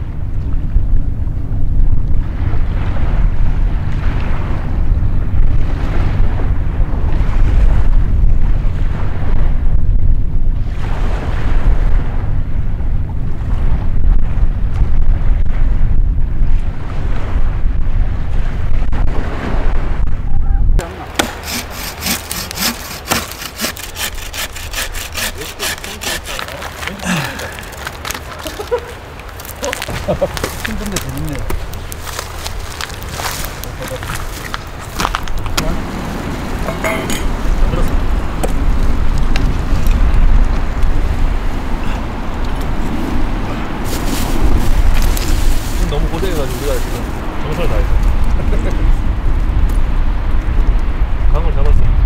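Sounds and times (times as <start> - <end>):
wind rumble on microphone: 0.0 - 21.0, 26.4 - 52.0
bow saw cutting branch: 20.8 - 28.4.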